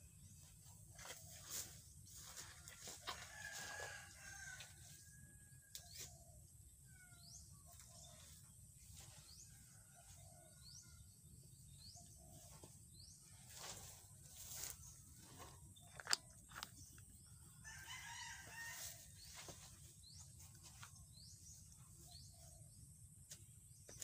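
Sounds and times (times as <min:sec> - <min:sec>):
rooster crowing: 0:03.1 - 0:05.0, 0:17.6 - 0:19.0.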